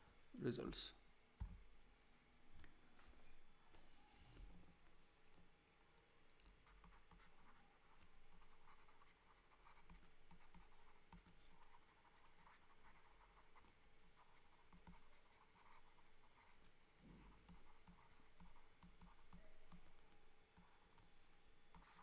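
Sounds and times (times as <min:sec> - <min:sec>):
stylus scratching on tablet: 0:06.5 - 0:22.0.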